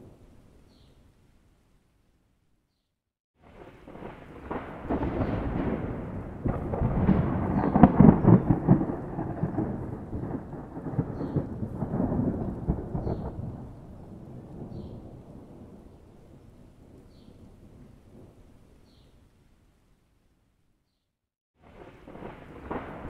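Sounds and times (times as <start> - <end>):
rolling thunder: 3.4 - 18.6, 21.6 - 23.0.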